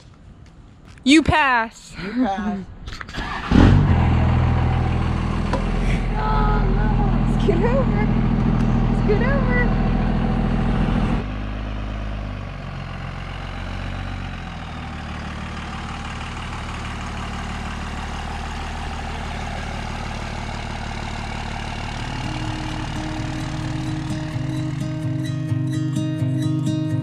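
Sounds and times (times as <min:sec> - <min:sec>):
pickup truck engine driving past: 0:03.2 - 0:25.7
music: 0:22.2 - 0:27.0.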